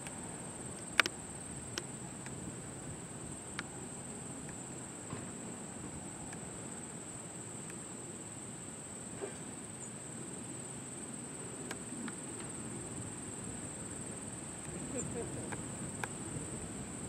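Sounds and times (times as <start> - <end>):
faint ticks: 0.0 - 2.4, 11.6 - 12.6
insect chorus trilling: 6.7 - 17.0.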